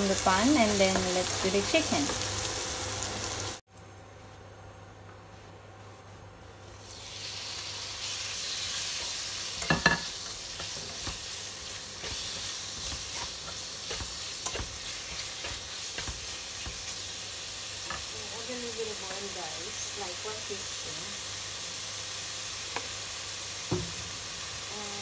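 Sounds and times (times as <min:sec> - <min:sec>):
chicken sizzling in pan: 0:00.0 - 0:03.6, 0:06.7 - 0:25.0
taps and scrapes in pan: 0:12.0 - 0:17.0.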